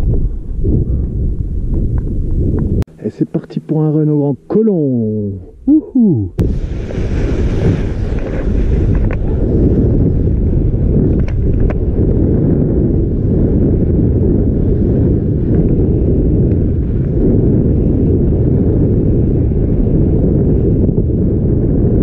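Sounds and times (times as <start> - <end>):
wind buffeting microphone: 0.0 - 3.0, 4.4 - 22.0.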